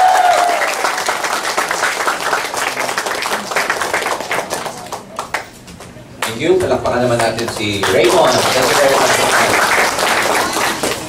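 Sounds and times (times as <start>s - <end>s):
audience applauding: 0.0s - 5.5s, 7.1s - 11.0s.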